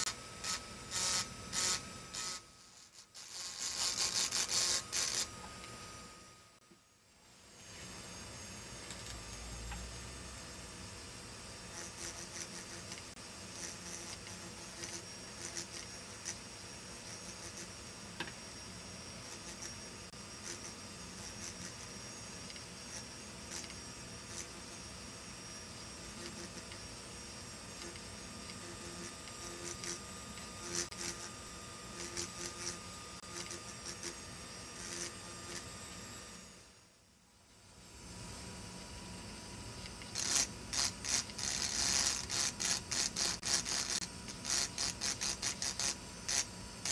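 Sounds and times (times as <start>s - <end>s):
high-pitched scratchy grinding: 0.0s - 5.4s, 40.1s - 46.9s
drill burr grinding glass: 0.0s - 6.1s, 11.6s - 36.8s, 39.8s - 46.9s
engraving drill whine: 0.0s - 7.0s, 7.6s - 37.0s, 38.2s - 46.9s.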